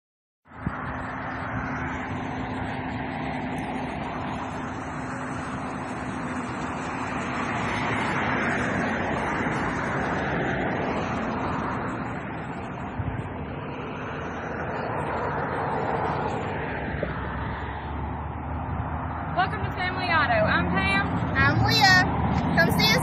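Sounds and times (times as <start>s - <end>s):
road noise: 0.4s - 23.0s
car engine hum: 0.5s - 23.0s.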